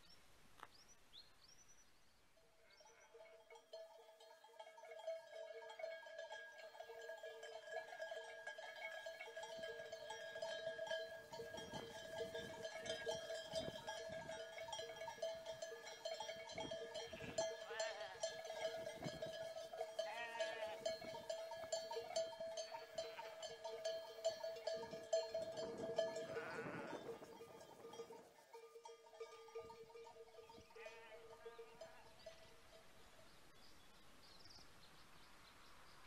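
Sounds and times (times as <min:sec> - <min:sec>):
livestock bells clanking: 0:02.7 - 0:33.1
quavering bleats: 0:17.0 - 0:18.4, 0:20.0 - 0:21.1, 0:22.8 - 0:23.5, 0:26.1 - 0:27.2, 0:30.7 - 0:32.1.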